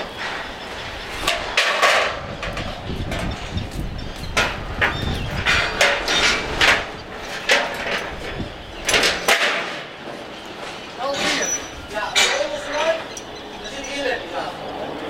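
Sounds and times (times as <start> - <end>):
metal knocks and clanks: 1.2 - 9.9, 10.6 - 14.0.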